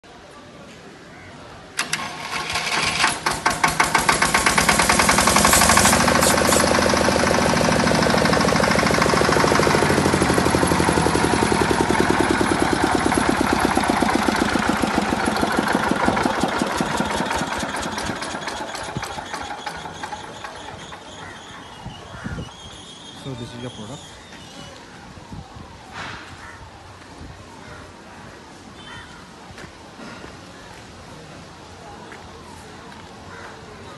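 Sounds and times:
diesel generator engine running: 1.8 - 24.1.

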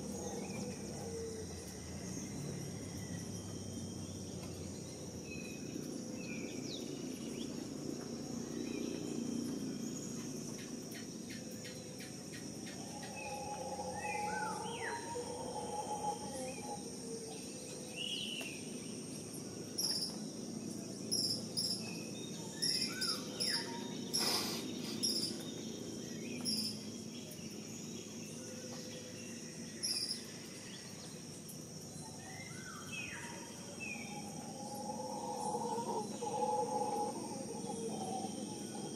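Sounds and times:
insects droning: 0.0 - 38.9
birds whistling and chirping: 12.6 - 16.8, 21.2 - 26.9, 32.0 - 38.9.

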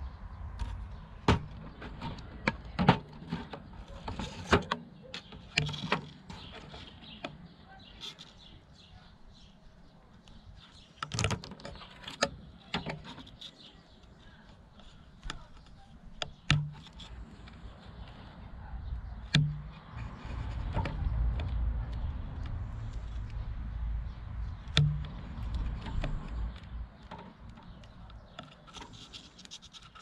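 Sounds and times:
plastic tubing clicking and rubbing: 11.0 - 18.2, 19.2 - 23.7, 24.5 - 30.0.

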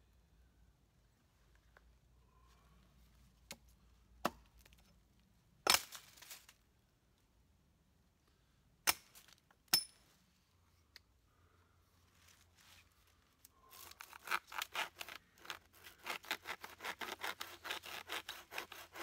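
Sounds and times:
hatchet chopping wood: 4.2 - 4.6.

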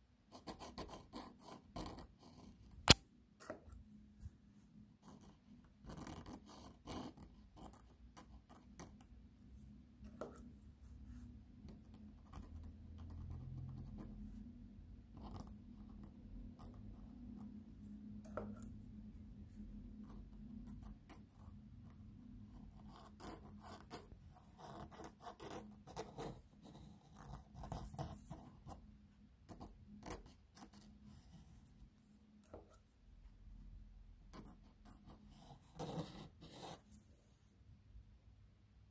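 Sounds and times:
faint low hum: 0.2 - 38.9
pen scratching on paper: 0.3 - 3.8, 5.0 - 9.1, 10.0 - 14.5, 15.1 - 18.8, 19.5 - 28.8, 29.4 - 31.8, 34.3 - 36.9.

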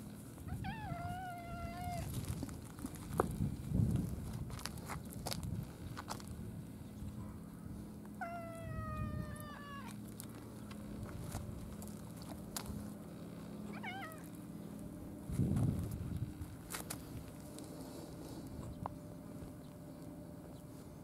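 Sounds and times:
cat meowing: 0.5 - 2.1, 8.2 - 10.0, 13.7 - 14.2.

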